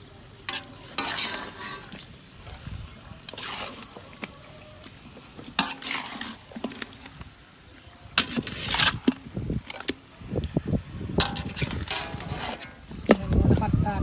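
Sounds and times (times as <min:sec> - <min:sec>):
metal spatula scraping wok: 0:00.4 - 0:02.4, 0:03.2 - 0:04.1, 0:05.4 - 0:07.0, 0:11.2 - 0:12.9.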